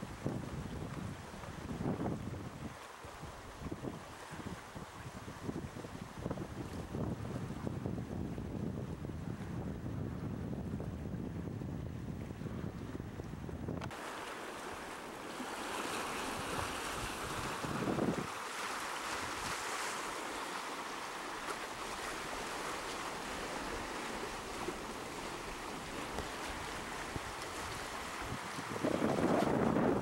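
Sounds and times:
wind rumble on microphone: 0:00.0 - 0:14.0, 0:16.3 - 0:18.3, 0:22.9 - 0:30.0
sea waves rushing: 0:13.8 - 0:30.0.

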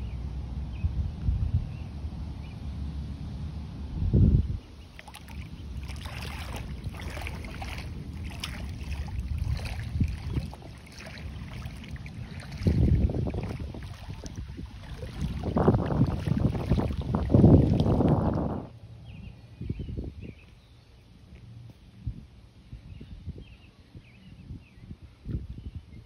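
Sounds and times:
wind rumbling on microphone: 0:00.0 - 0:26.0
shallow water sloshing and splashing: 0:04.8 - 0:18.7.

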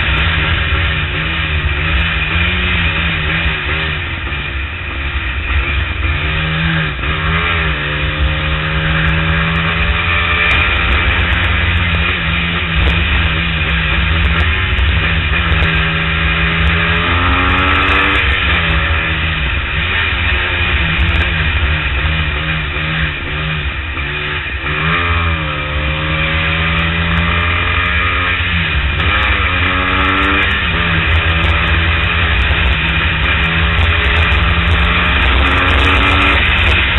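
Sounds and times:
low wind rumble: 0:00.0 - 0:36.9
motorcycle engine running: 0:00.0 - 0:36.9.

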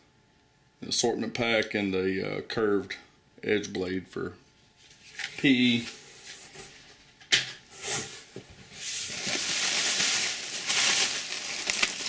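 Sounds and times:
plastic packing pillows crinkling: 0:08.7 - 0:12.0.

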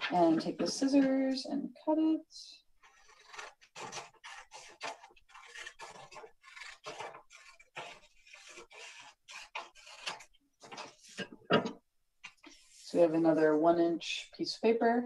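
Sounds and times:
scissors snipping paper: 0:02.8 - 0:11.1.

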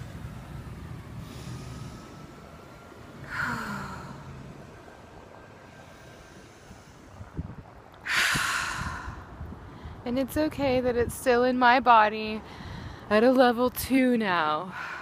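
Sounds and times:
woman breathing out heavily: 0:01.2 - 0:02.6, 0:03.2 - 0:05.0, 0:05.7 - 0:10.0, 0:12.4 - 0:13.1.

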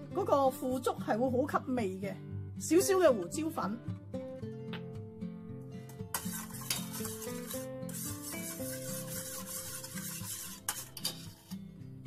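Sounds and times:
background music: 0:00.0 - 0:12.0
metal spoon stirring in steel bowl: 0:06.1 - 0:11.7.

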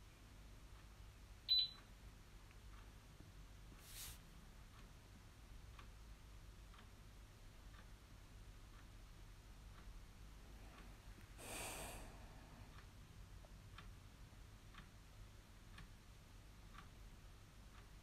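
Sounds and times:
faint regular ticking: 0:00.2 - 0:11.4, 0:12.2 - 0:18.0
short breathy hiss: 0:03.8 - 0:04.2, 0:11.4 - 0:12.5.

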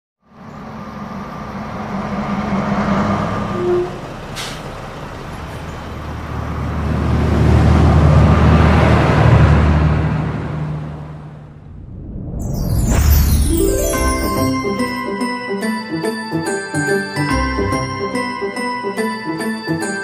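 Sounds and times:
bus engine running: 0:00.3 - 0:11.7
brake squeal: 0:02.8 - 0:05.9
air brake hiss: 0:04.3 - 0:04.8.

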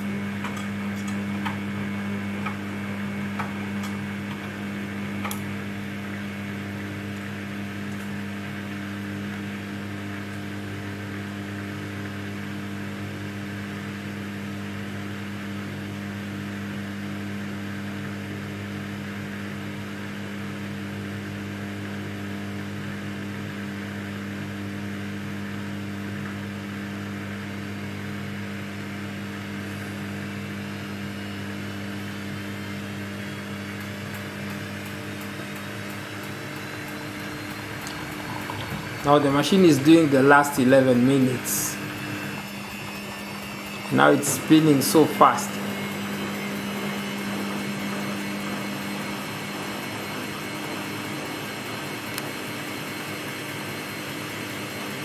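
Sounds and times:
washing machine spinning: 0:00.0 - 0:55.0.

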